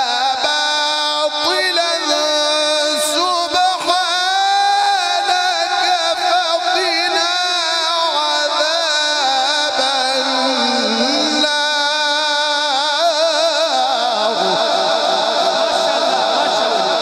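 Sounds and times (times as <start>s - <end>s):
man reciting melodically: 0.0s - 17.0s.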